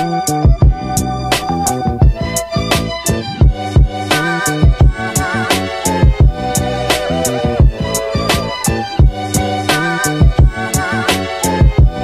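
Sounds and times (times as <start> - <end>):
bass line: 0.6 - 11.0
held melody note: 6.3 - 9.6.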